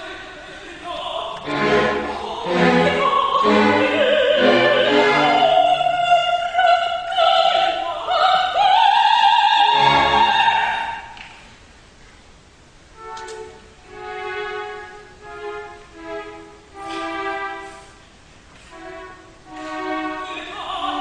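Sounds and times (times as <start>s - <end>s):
woman singing opera with vibrato: 0.0s - 11.3s, 18.6s - 21.0s
orchestra playing: 1.4s - 6.0s, 9.7s - 10.9s, 12.9s - 21.0s.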